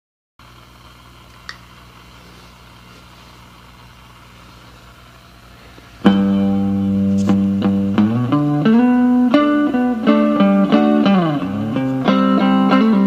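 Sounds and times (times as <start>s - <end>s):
amp humming: 0.4s - 13.0s
electric guitar chord and notes: 6.0s - 13.0s.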